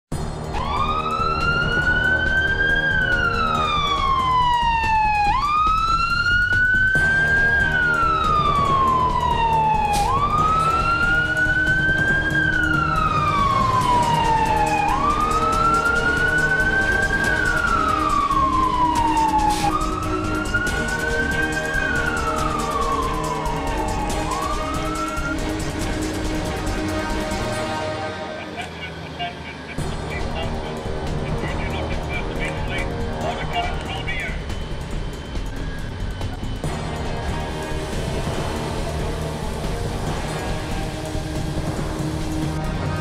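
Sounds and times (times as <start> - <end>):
siren wailing: 0.5 - 36.7
heavy vehicle engine running: 25.4 - 43.0.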